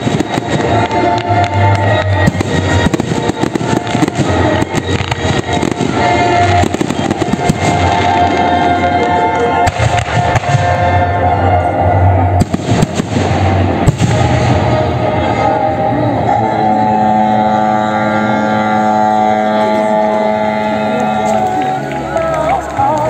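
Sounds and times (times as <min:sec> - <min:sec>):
fireworks bursting and crackling: 0:00.0 - 0:17.2
music playing: 0:00.0 - 0:23.0.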